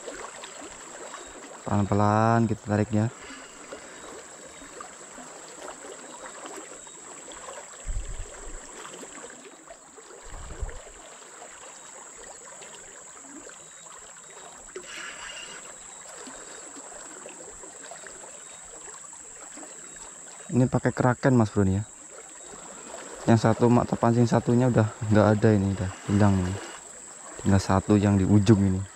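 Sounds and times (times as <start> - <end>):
river water rushing: 21.6 - 28.9.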